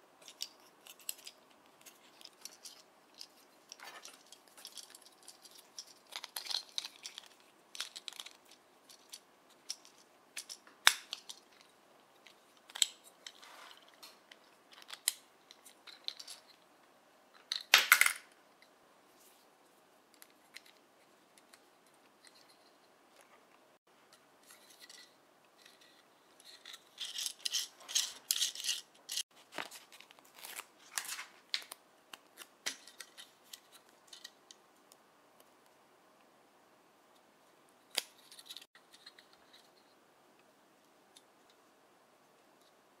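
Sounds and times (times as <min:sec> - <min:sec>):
plastic parts clattering: 0:00.2 - 0:16.6, 0:24.4 - 0:31.8
plastic toy parts clicking: 0:00.2 - 0:16.6, 0:24.5 - 0:29.2.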